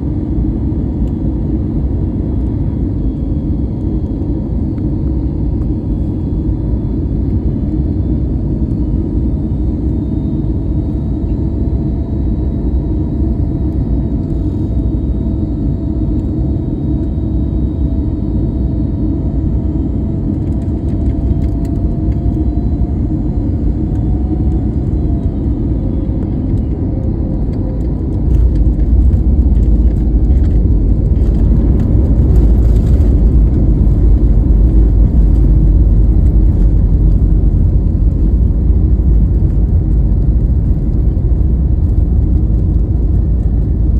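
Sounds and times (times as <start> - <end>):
faint engine whine: 0.0 - 43.9
jet engines and wheels rumbling: 0.0 - 43.9.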